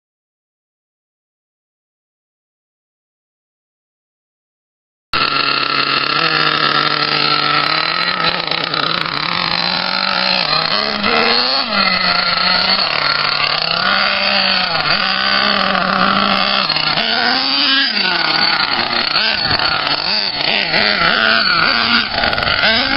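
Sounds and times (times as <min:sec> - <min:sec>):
model truck engine revving: 0:05.2 - 0:22.9.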